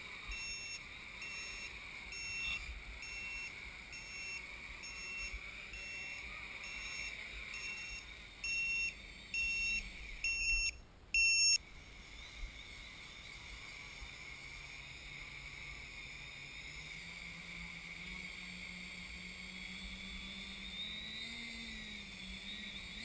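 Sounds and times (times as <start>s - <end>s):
quadcopter motors humming: 0.0s - 23.0s
high-pitched electronic beeps: 0.2s - 11.6s.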